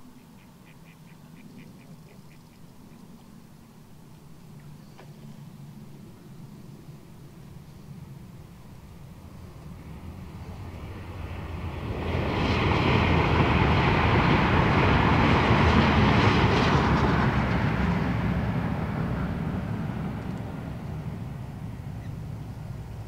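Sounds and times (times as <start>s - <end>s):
vehicle passing: 7.3s - 23.0s.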